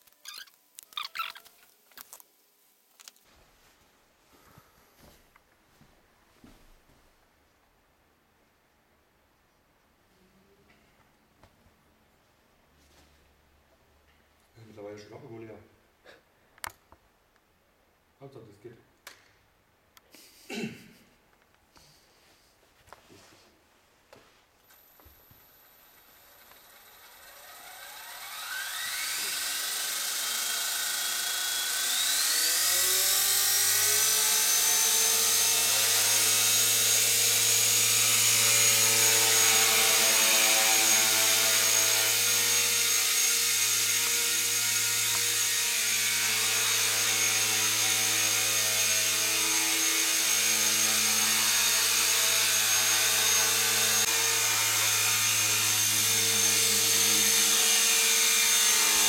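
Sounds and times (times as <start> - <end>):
electric helicopter motor whine: 24.8 - 59.0.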